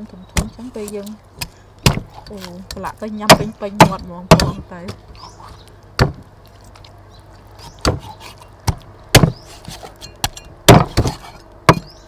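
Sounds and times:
cleaver chopping on wooden block: 0:01.4 - 0:04.6, 0:07.7 - 0:12.0.

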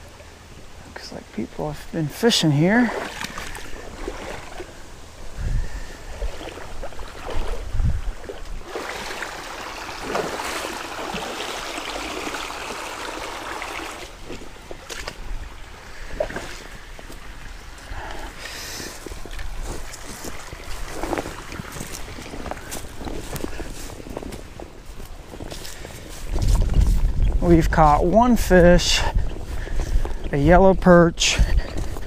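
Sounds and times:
wind buffeting microphone: 0:02.8 - 0:11.3, 0:14.2 - 0:32.0
water splashing while wading: 0:02.8 - 0:27.3.

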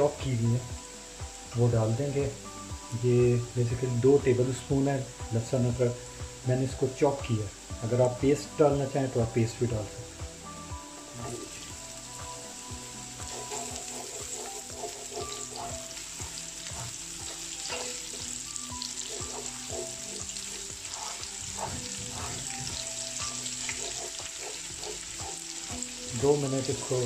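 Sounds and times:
garlic sizzling in hot oil: 0:00.0 - 0:27.0
spatula scraping and knocking pot: 0:13.2 - 0:16.0, 0:16.6 - 0:25.4.

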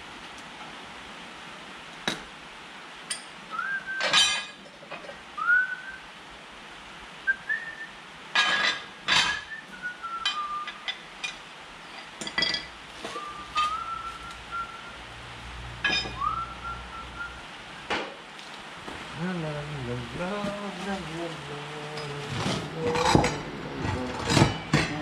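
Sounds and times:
person whistling: 0:03.5 - 0:04.2, 0:05.4 - 0:06.0, 0:07.3 - 0:07.9, 0:09.4 - 0:10.8, 0:13.1 - 0:15.0, 0:16.2 - 0:17.4
metal tools clinking on steel discs: 0:04.0 - 0:05.2, 0:08.3 - 0:09.5, 0:10.2 - 0:13.9, 0:15.8 - 0:16.4, 0:21.9 - 0:25.0.

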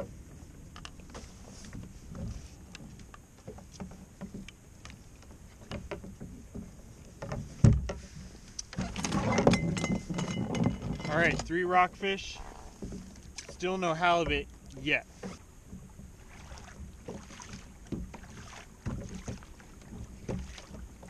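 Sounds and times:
light clicks and knocks: 0:00.7 - 0:12.1
water splashing: 0:08.6 - 0:21.0.

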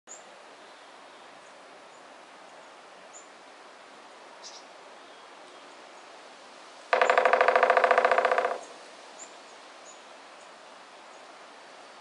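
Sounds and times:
steady background hiss: 0:00.1 - 0:12.0
faint bird chirps: 0:04.4 - 0:05.8, 0:07.0 - 0:11.3.

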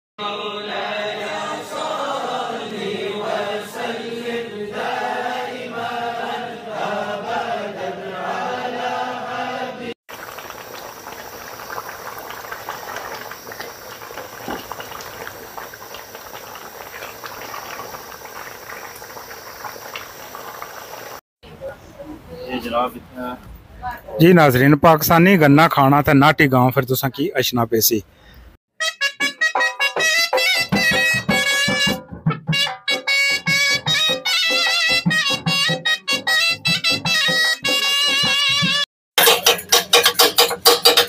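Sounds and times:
person singing a slow chant: 0:00.2 - 0:10.0
meat sizzling in a pot: 0:10.1 - 0:21.2.

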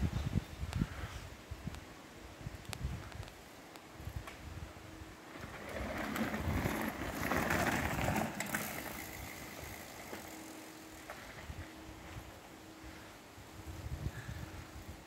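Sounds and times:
bike tyres rolling on dirt: 0:04.0 - 0:13.1.

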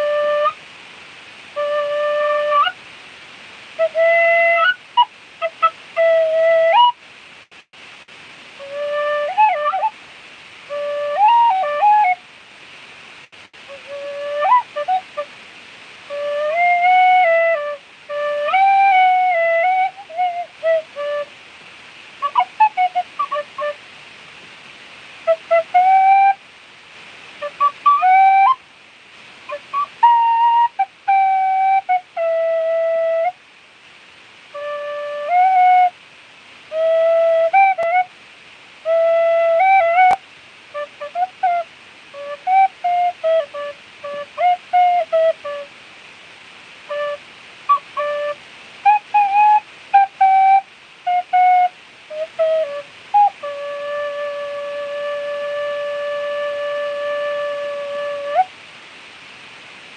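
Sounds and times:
tin whistle playing: 0:00.0 - 0:00.6, 0:01.6 - 0:02.8, 0:03.8 - 0:07.0, 0:08.6 - 0:09.9, 0:10.7 - 0:12.2, 0:13.7 - 0:15.3, 0:16.1 - 0:21.3, 0:22.2 - 0:23.8, 0:25.2 - 0:26.4, 0:27.4 - 0:28.6, 0:29.5 - 0:33.4, 0:34.5 - 0:36.0, 0:36.7 - 0:38.1, 0:38.8 - 0:45.7, 0:46.9 - 0:58.5.

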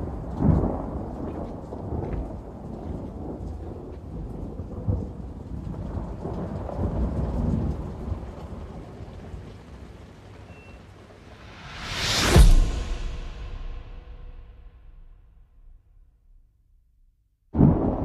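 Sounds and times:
steady rain: 0:00.0 - 0:12.0, 0:17.6 - 0:18.0
low rolling thunder: 0:00.0 - 0:16.0, 0:17.5 - 0:18.0.

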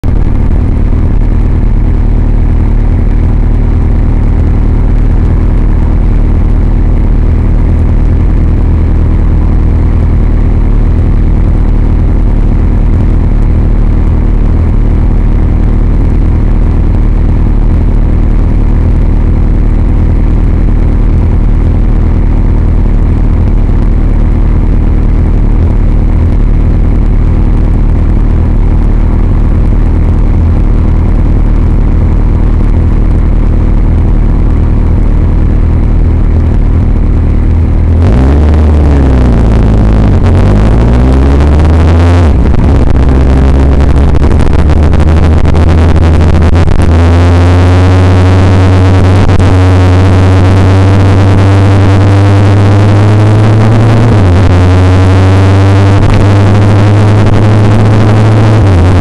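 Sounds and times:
motorcycle engine idling: 0:00.0 - 0:46.8.

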